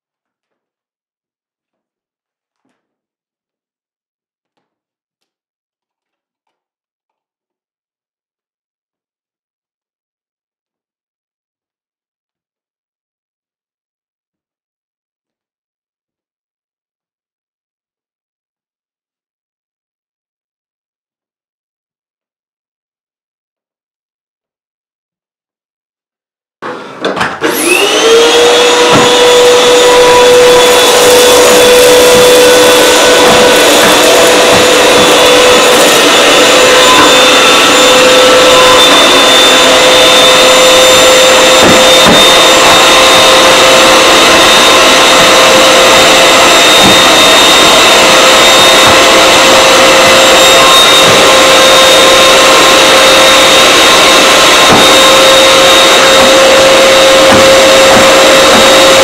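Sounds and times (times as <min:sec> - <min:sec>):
vacuum cleaner motor whining: 0:26.6 - 0:59.0.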